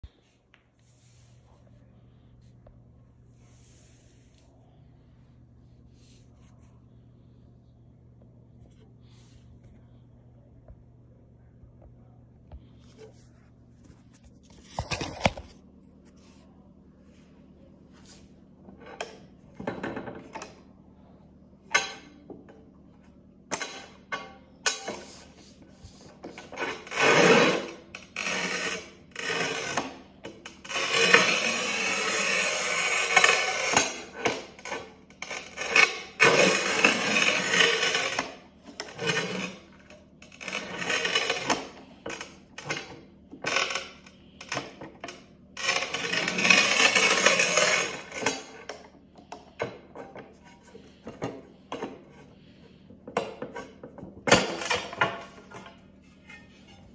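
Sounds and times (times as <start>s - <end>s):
tile cutter scraping tile: 23.5s - 56.9s.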